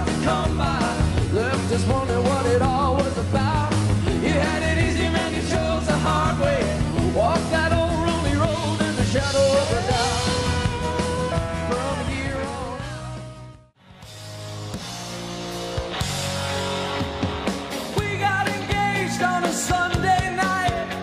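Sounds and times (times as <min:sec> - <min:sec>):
male lead vocal: 0:00.0 - 0:13.5, 0:17.8 - 0:21.0
bass: 0:00.0 - 0:21.0
drums: 0:00.0 - 0:21.0
electric guitar: 0:00.0 - 0:21.0.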